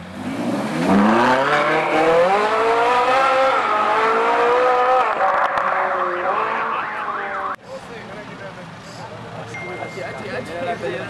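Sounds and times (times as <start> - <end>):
sports car engine accelerating: 0.0 - 7.6.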